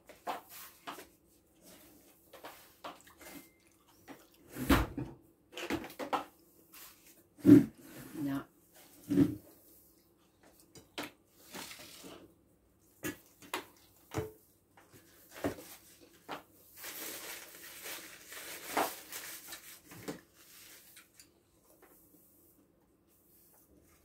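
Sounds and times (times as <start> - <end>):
paper tissue rustling: 15.0 - 21.2.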